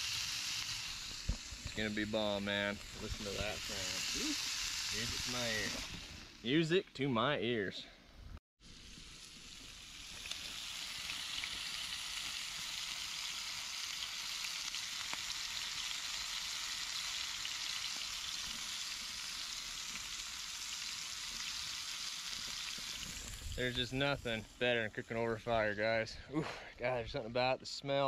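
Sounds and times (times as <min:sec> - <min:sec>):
food sizzling in a pan: 0:00.0 - 0:06.6, 0:08.6 - 0:25.8.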